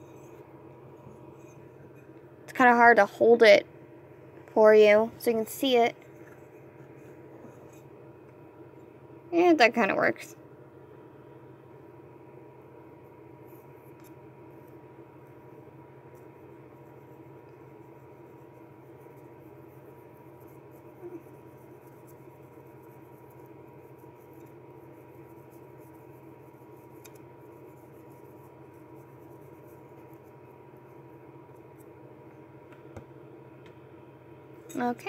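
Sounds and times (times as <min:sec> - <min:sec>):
background hum: 0:00.0 - 0:35.0.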